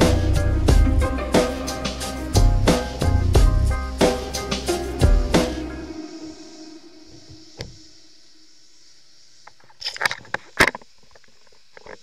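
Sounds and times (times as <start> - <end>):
background music: 0.0 - 7.6.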